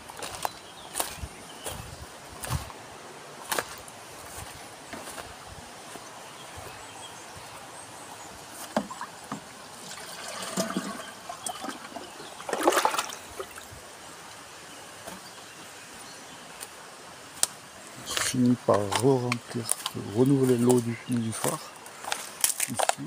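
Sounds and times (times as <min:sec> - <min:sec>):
water sloshing in watering can: 0:08.6 - 0:13.6
water splash: 0:09.8 - 0:13.7.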